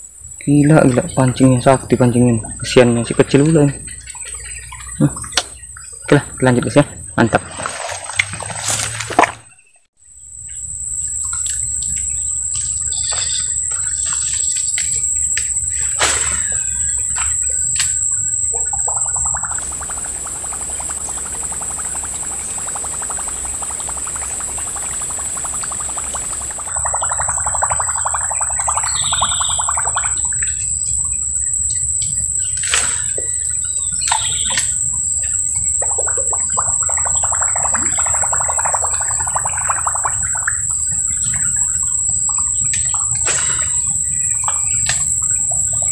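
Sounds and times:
high-pitched insect drone: 0.0 - 9.2, 10.0 - 20.0, 26.8 - 45.9
bird chirps: 9.4 - 17.7, 28.8 - 34.9.

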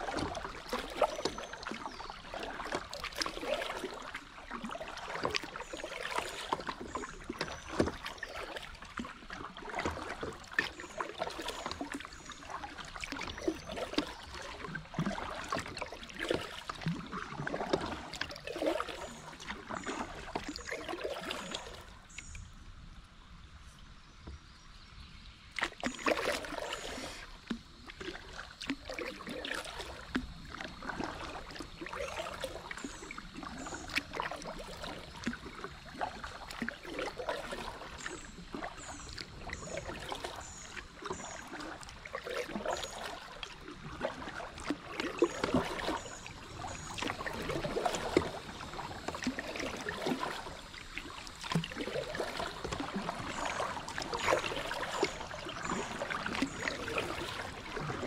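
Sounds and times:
kayak paddle splashing water: 0.0 - 22.6, 24.3 - 58.0.

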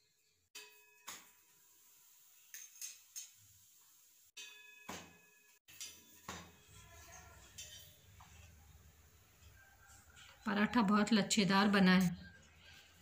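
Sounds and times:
utensils clinking on metal: 2.5 - 3.4.

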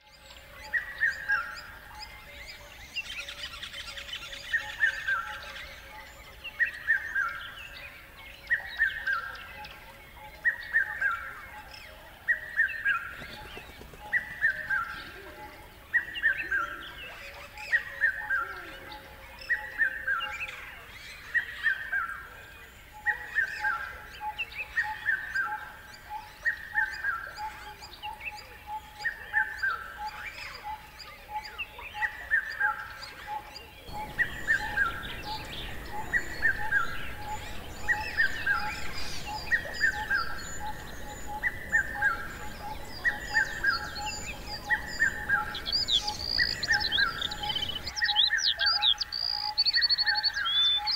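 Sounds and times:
faint chirps of other birds: 0.0 - 50.9
bird song falling notes: 33.9 - 49.5.

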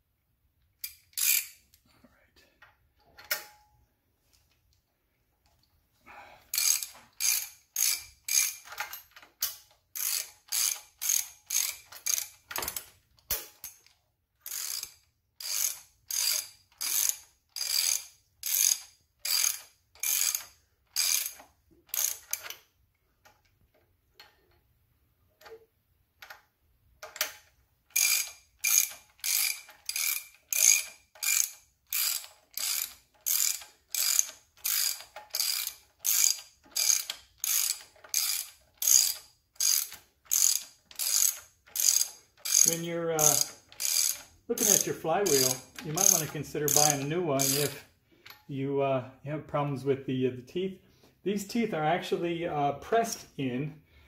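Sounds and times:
ratcheting wrench clicking: 0.8 - 1.8, 6.5 - 22.7, 27.0 - 48.4.

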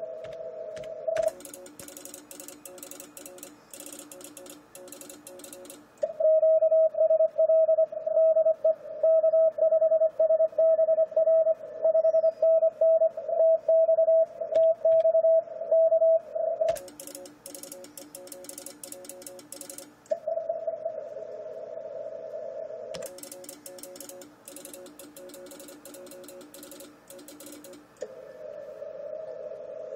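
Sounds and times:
weaker lower morse signals: 0.0 - 29.9
computer keyboard clicks: 0.2 - 6.1, 16.7 - 20.2, 23.0 - 28.1
morse code tone: 1.1 - 6.0, 16.7 - 20.0, 23.0 - 27.9.

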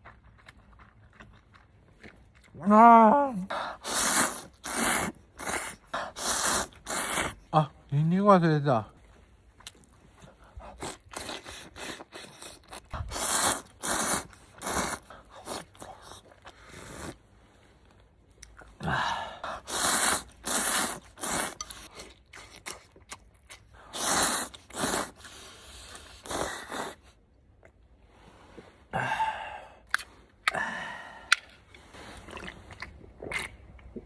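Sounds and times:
chewing: 0.0 - 2.7, 9.0 - 17.2, 19.6 - 26.8, 31.3 - 34.0
person slurping noodles: 3.4 - 7.5, 10.6 - 17.2, 18.8 - 22.9, 23.8 - 27.2.

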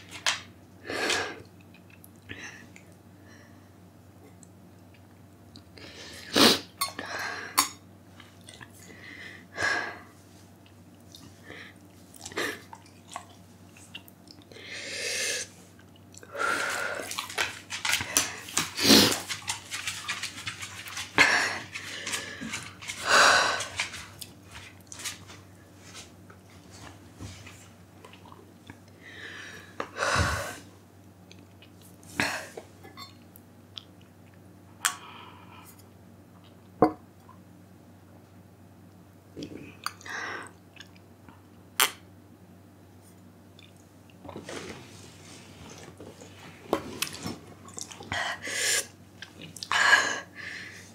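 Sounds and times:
woman breathing sharply and sniffing: 29.0 - 30.7.

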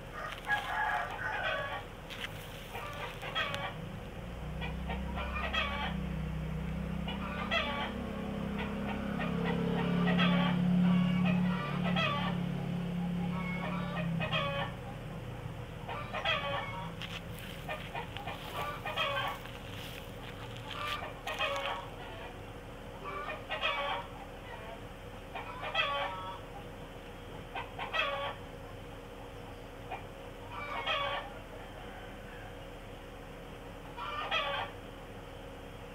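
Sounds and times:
chickens clucking: 0.0 - 3.8, 4.4 - 6.1, 6.9 - 32.1, 33.8 - 34.8.

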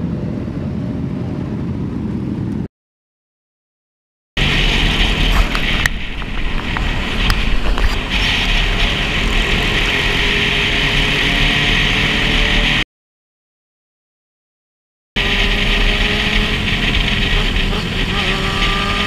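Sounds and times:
motorcycle engine rumble: 4.4 - 12.8, 15.2 - 19.0
wind rush over microphone: 4.4 - 12.8.

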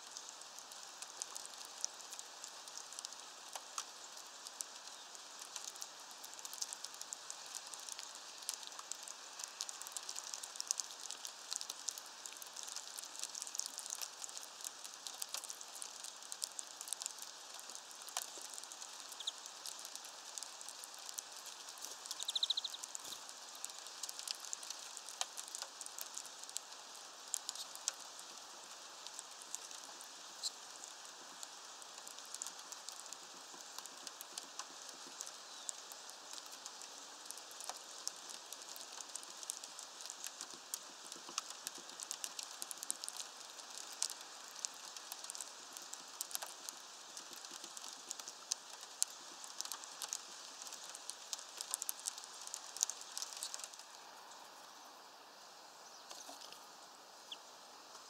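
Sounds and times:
rain pattering and dripping: 0.0 - 58.0
small bird chirp: 19.0 - 19.5, 22.0 - 23.3, 27.4 - 27.8, 35.4 - 35.8, 55.8 - 57.5.

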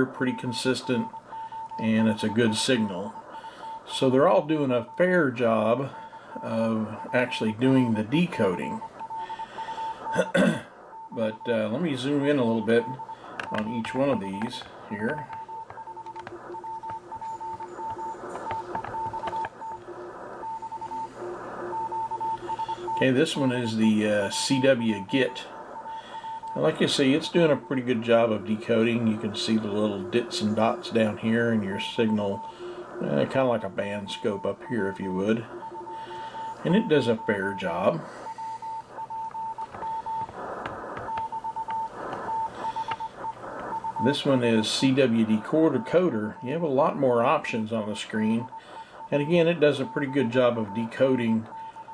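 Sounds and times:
morse code tone: 0.0 - 51.9
receiver hiss: 0.0 - 51.9.

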